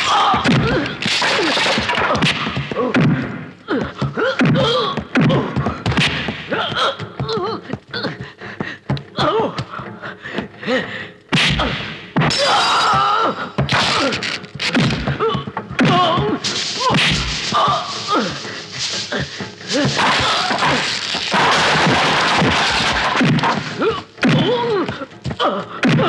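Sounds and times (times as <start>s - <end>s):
punches and body blows: 0.0s - 6.7s, 11.3s - 12.5s, 13.7s - 26.0s
men grunting and yelling: 11.6s - 26.0s.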